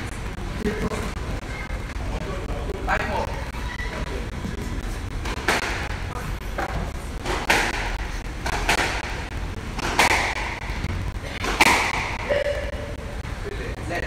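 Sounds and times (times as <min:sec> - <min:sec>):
squash ball smacks: 0:05.2 - 0:06.0, 0:06.6 - 0:10.7, 0:11.4 - 0:12.3.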